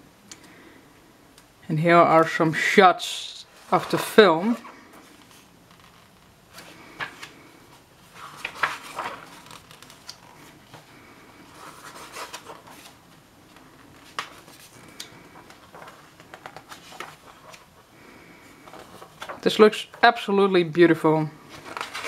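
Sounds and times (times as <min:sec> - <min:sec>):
pages being flipped: 0:03.6 - 0:07.4, 0:08.0 - 0:17.8, 0:18.6 - 0:19.5, 0:21.4 - 0:22.0.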